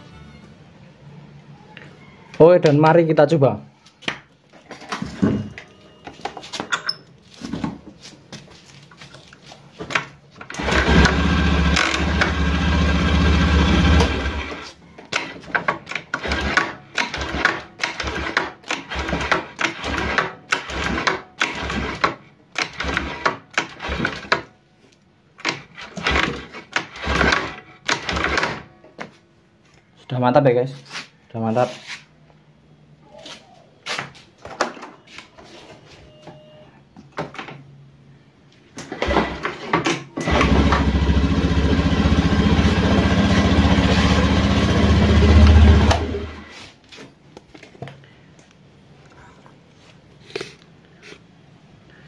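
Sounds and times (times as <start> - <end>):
scooter engine running: 10.5 - 14.6, 40.2 - 46.5
scooter kick-start rasping: 10.5 - 24.4, 25.4 - 28.7, 38.8 - 39.6, 40.2 - 46.5.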